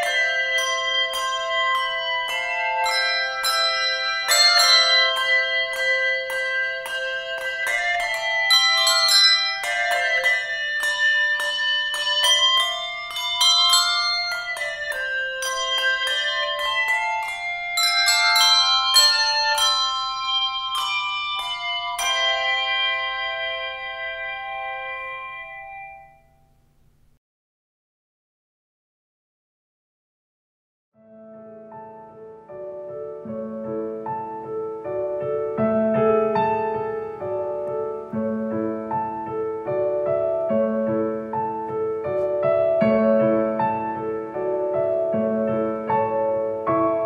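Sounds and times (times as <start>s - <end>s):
handbell choir playing: 0.0s - 26.3s.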